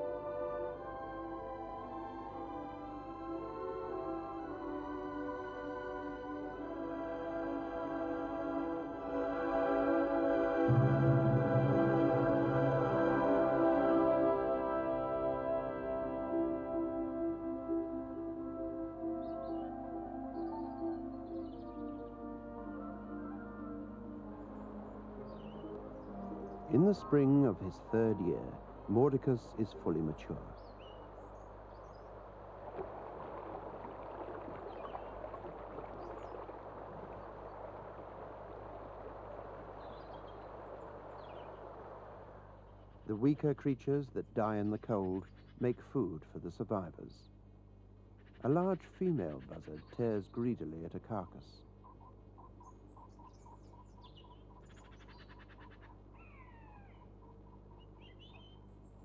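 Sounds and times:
low steady hum: 0:00.0 - 0:59.0
bird calls and chirps: 0:19.2 - 0:22.2, 0:24.4 - 0:29.1, 0:30.2 - 0:32.2, 0:34.6 - 0:37.7, 0:39.7 - 0:41.8, 0:44.4 - 0:45.9, 0:48.2 - 0:50.6, 0:51.5 - 0:59.0
stream babbling over rocks: 0:32.1 - 0:42.6
faint bird chirps: 0:48.2 - 0:50.6, 0:51.6 - 0:59.0.

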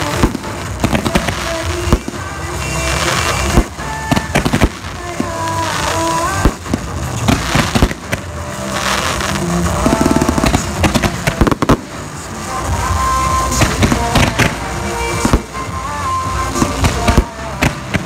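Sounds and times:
fireworks bangs and crackles: 0:00.0 - 0:18.0
music: 0:00.0 - 0:18.0.

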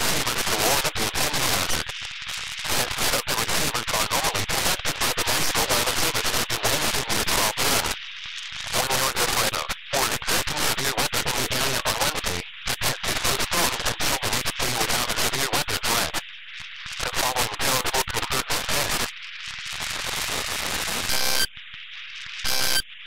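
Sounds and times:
radio broadcast speech: 0:00.0 - 0:16.2, 0:16.9 - 0:19.1
radio static hiss: 0:00.0 - 0:23.0
data tone bursts: 0:19.8 - 0:23.0.

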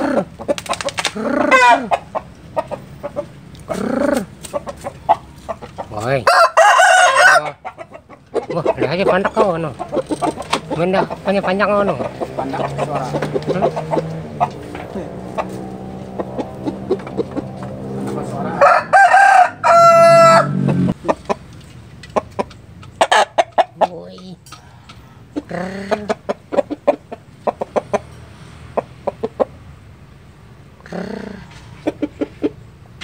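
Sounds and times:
chicken clucking: 0:00.0 - 0:29.6, 0:31.4 - 0:33.0
rooster crowing: 0:06.2 - 0:07.7, 0:17.7 - 0:20.9.

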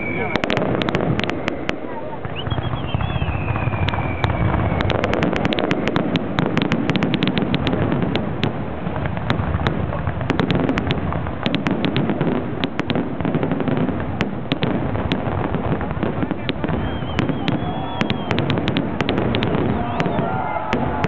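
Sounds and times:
firework falling whistle: 0:00.0 - 0:05.8, 0:16.6 - 0:21.0
firework bursts and crackling bangs: 0:00.0 - 0:21.0.

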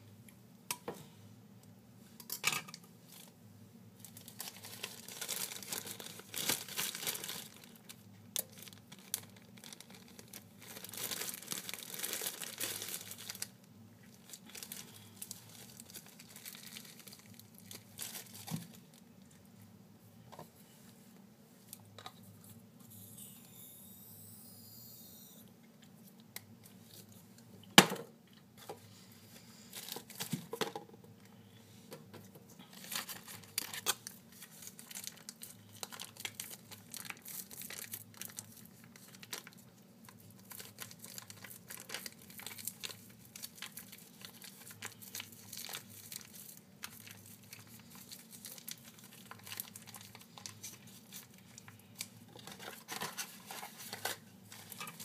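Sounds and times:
plastic wrapper crinkling: 0:04.0 - 0:19.4, 0:29.7 - 0:30.5, 0:32.7 - 0:55.0.

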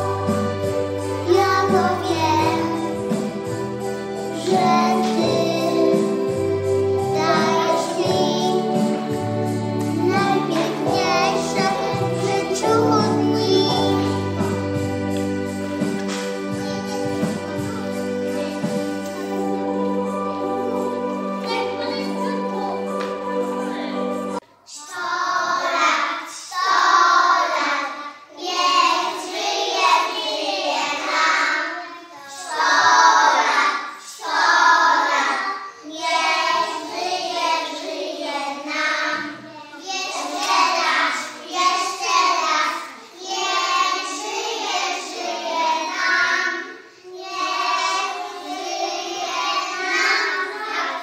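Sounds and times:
recorded instrumental music: 0:00.0 - 0:24.4
children singing together: 0:00.0 - 0:51.0.

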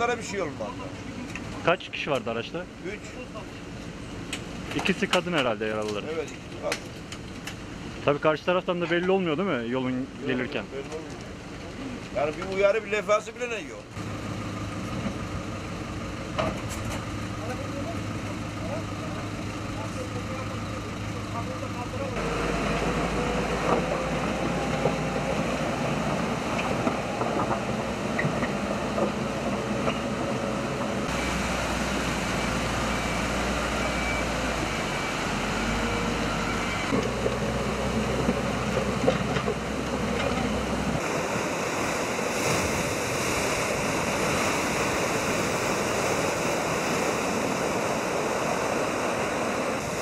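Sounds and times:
diesel engine running: 0:13.8 - 0:50.0
fast-flowing stream rushing: 0:22.2 - 0:50.0.

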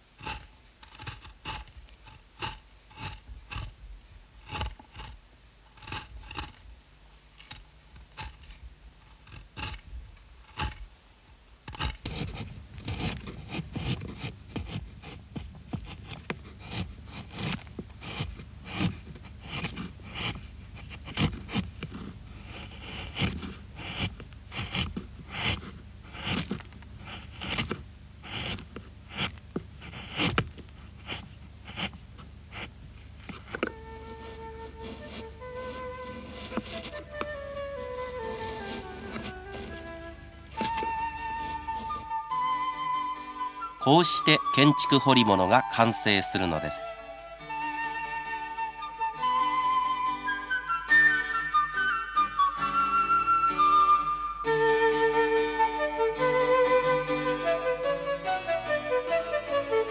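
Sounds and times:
knife scraping wood: 0:00.0 - 0:10.9, 0:11.6 - 0:59.9.

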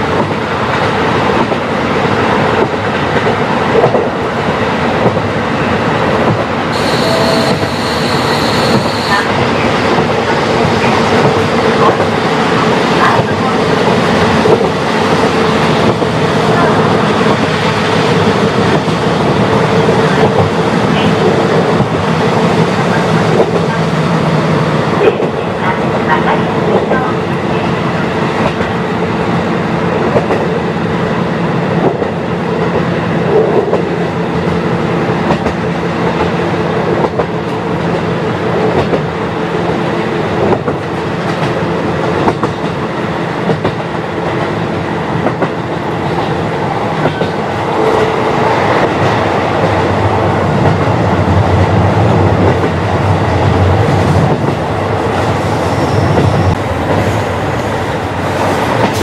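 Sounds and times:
train running noise: 0:00.0 - 0:59.0
diesel engine drone: 0:06.8 - 0:09.6.

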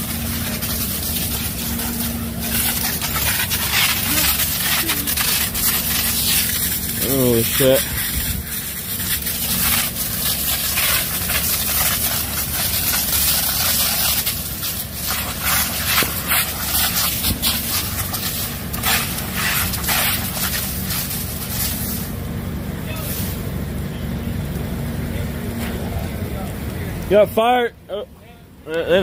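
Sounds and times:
fire crackling and popping: 0:00.0 - 0:27.4
low hum: 0:00.0 - 0:28.9.

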